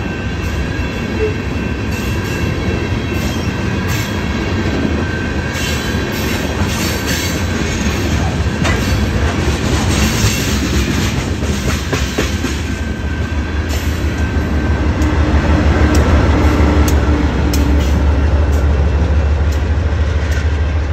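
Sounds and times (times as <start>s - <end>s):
diesel locomotive engine drone: 0.0s - 20.9s
train wheels clattering on rails: 0.0s - 20.9s.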